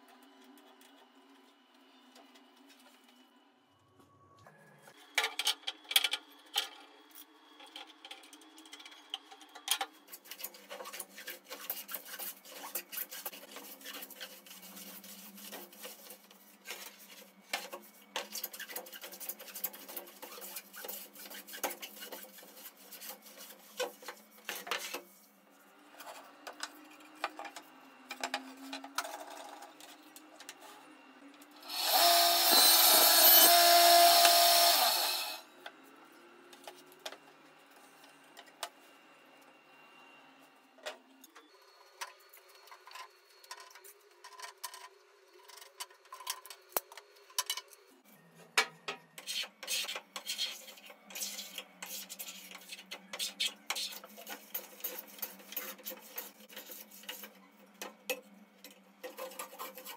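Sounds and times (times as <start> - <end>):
table saw cutting wood: 31.6 - 35.5.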